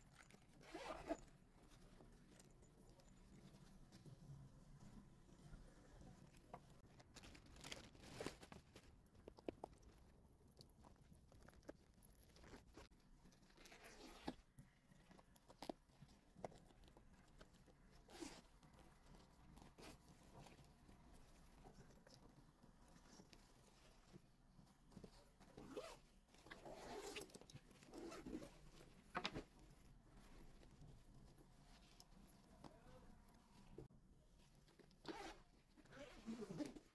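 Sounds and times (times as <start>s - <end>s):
plastic bags rustling and tearing: 7.0s - 8.8s.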